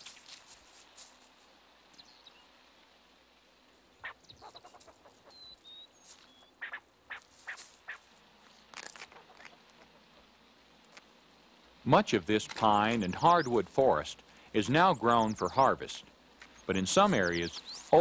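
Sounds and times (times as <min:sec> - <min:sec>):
rustling in dry leaf litter: 0:00.0 - 0:01.6, 0:07.1 - 0:09.1, 0:16.4 - 0:18.0
faint high bird chirps: 0:01.9 - 0:02.5, 0:04.0 - 0:08.0, 0:16.5 - 0:18.0.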